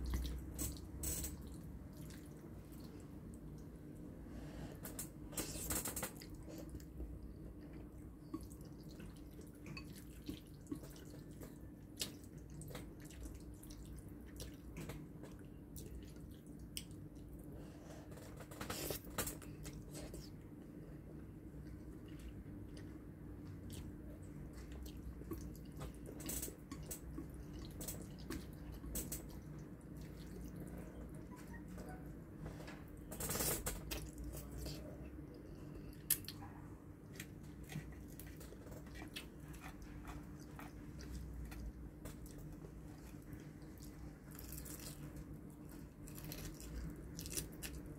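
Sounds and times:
steady low hum: 0.0s - 47.9s
slurping and chewing noodles: 7.6s - 20.4s, 21.6s - 31.3s, 37.0s - 47.9s.

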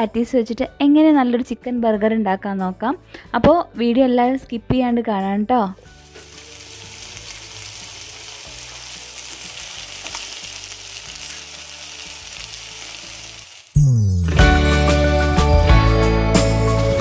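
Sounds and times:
patties sizzling on a griddle: 6.0s - 13.8s.

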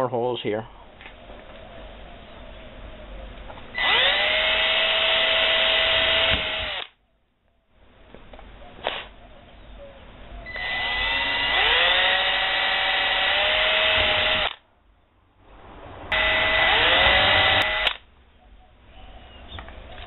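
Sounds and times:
cordless drill whining: 3.7s - 6.9s, 10.5s - 14.6s, 16.1s - 18.0s.

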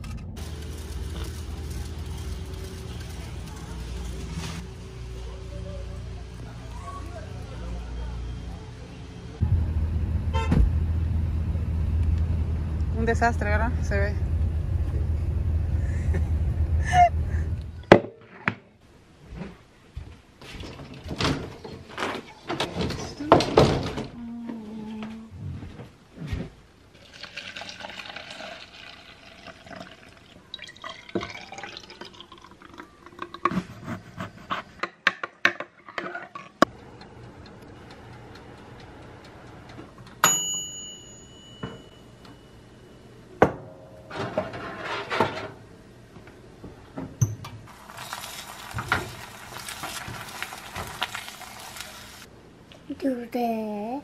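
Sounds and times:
liquid pouring: 26.9s - 33.5s
bright ringing ding: 40.2s - 43.0s.

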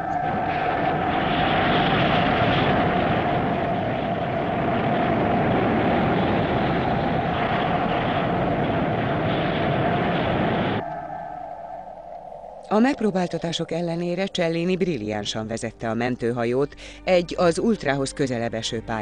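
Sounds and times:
spacecraft engine rumble and hum: 0.0s - 15.1s.

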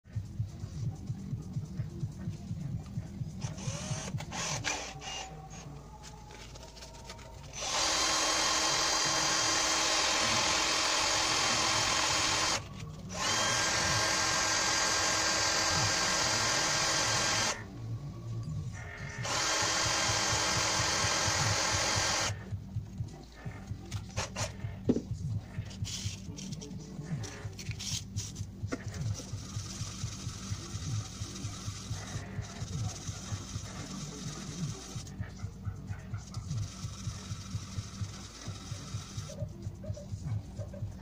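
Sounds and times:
faint background music: 0.0s - 41.0s
cordless drill running: 3.4s - 5.6s, 7.5s - 17.7s, 18.9s - 22.5s, 28.8s - 35.1s, 36.4s - 39.4s.

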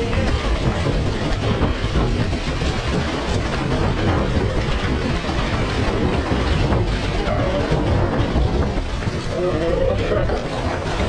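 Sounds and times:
surf washing: 0.0s - 11.0s
wind buffeting microphone: 0.0s - 11.0s.

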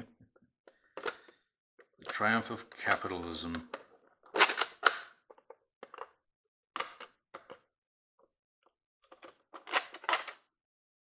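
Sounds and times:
plastic toy handling clicks and rustles: 0.7s - 6.2s, 6.8s - 7.7s, 9.0s - 10.5s.

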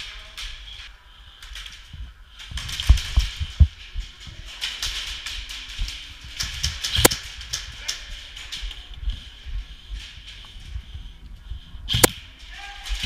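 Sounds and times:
footsteps: 0.0s - 13.0s
sharp crack: 1.5s - 8.9s, 11.9s - 13.0s.

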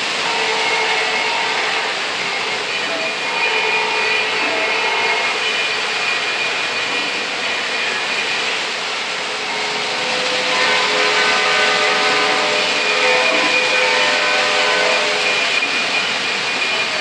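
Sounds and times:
model train wheels rumbling: 0.0s - 17.0s
steady pitched tones: 0.3s - 17.0s.

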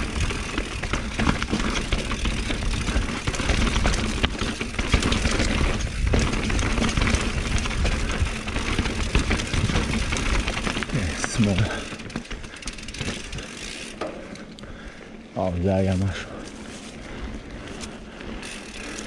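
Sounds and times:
tyres crunching over stones: 0.0s - 14.4s
bike chain and frame clattering: 0.0s - 15.0s, 15.6s - 19.0s.

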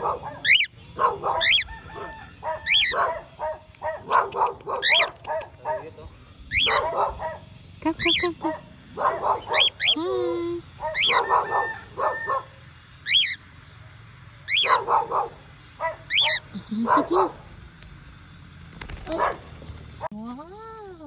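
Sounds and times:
parrot squawks: 0.0s - 3.2s, 4.8s - 5.2s, 6.5s - 7.0s, 9.3s - 10.0s, 10.8s - 13.4s, 14.4s - 14.9s, 15.9s - 16.5s
parrot screeches: 1.4s - 3.0s, 6.5s - 6.8s, 10.9s - 12.3s.

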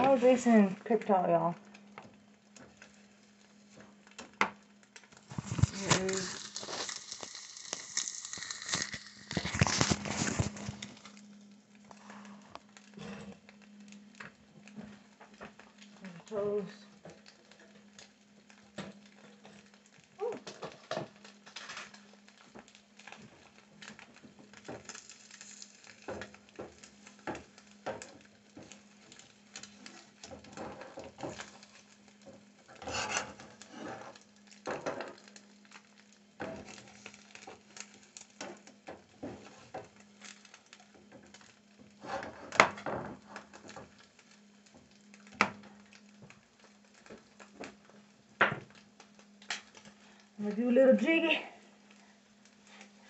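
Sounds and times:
metal utensil scraping frying pan: 32.8s - 34.1s.

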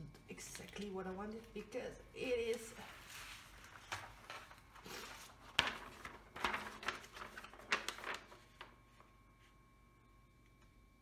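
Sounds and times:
paper rustling and crackling: 2.4s - 9.5s.

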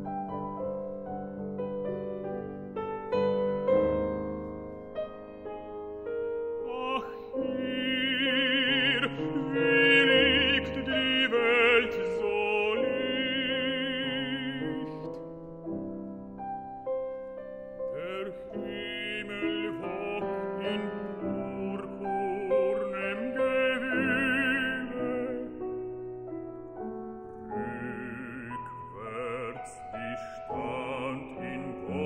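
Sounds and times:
piano accompaniment: 0.0s - 32.0s
baritone singing with vibrato: 6.6s - 15.1s, 17.9s - 25.8s, 27.5s - 32.0s.

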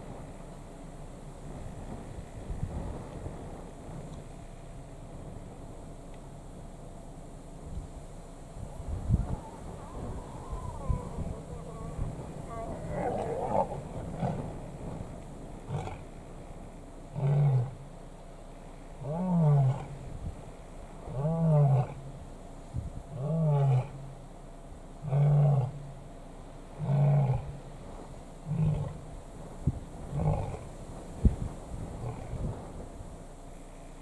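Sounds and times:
lion roaring: 9.2s - 14.7s, 15.6s - 16.1s, 17.1s - 17.8s, 19.0s - 20.0s, 21.1s - 22.1s, 23.1s - 24.1s, 25.0s - 25.9s, 26.8s - 27.6s, 28.4s - 29.1s, 30.1s - 30.7s, 32.0s - 32.4s.

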